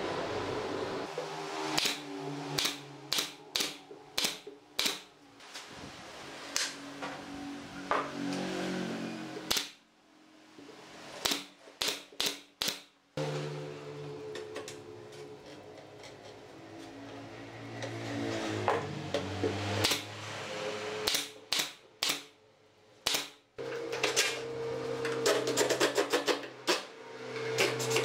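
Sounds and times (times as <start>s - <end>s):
nail gun firing into wood: 2.6s - 5.1s, 11.2s - 12.9s, 21.0s - 22.3s, 23.0s - 23.4s.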